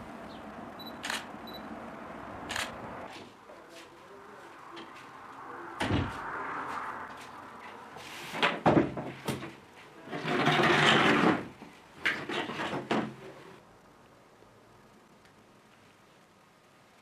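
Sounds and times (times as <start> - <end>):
books knocking on desk: 8.4 - 9.6.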